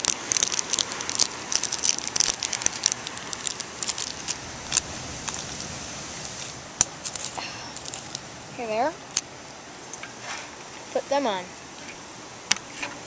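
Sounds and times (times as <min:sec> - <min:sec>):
plastic packaging crinkling: 0:00.0 - 0:05.7, 0:06.8 - 0:08.2.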